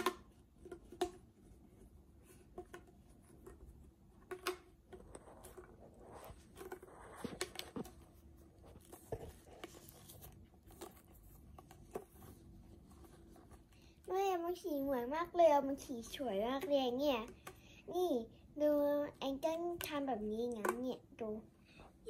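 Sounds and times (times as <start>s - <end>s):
plastic tubes clicking and crinkling: 0.0s - 1.3s, 2.4s - 8.1s.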